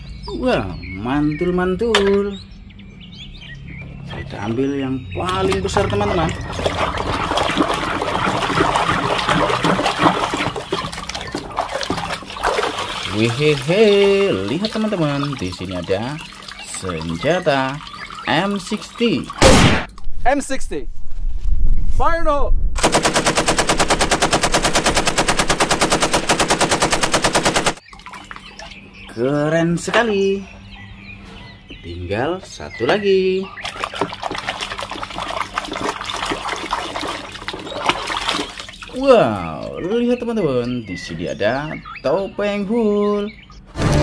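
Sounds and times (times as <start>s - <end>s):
water running and splashing: 5.2s - 19.4s, 33.6s - 39.9s
rapid machine-gun fire: 22.8s - 27.8s.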